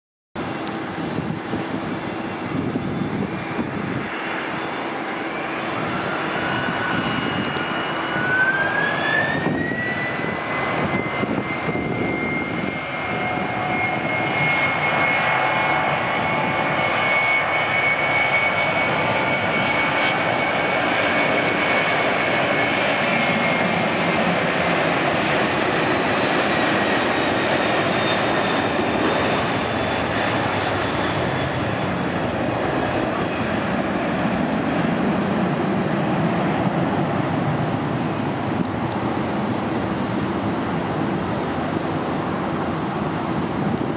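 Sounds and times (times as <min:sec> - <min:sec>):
jet engine whine: 0:00.4 - 0:43.9
jet roar: 0:00.4 - 0:43.9.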